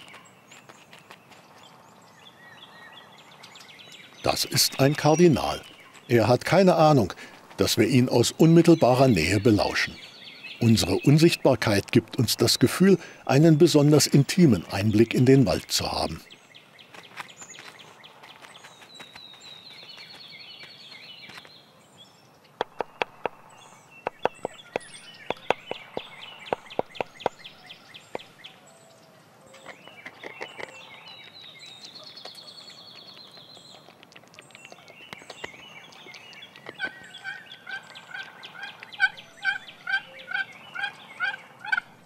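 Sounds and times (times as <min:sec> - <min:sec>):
songbird trilling: 0:01.5 - 0:41.9
turkey hen yelping: 0:37.2 - 0:41.9.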